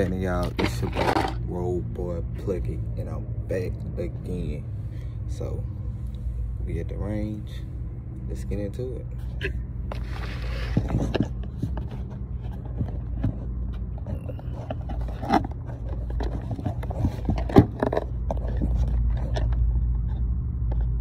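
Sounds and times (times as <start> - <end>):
steady low rumble: 0.0 - 21.0
phone handling noise against clothing: 9.4 - 21.0.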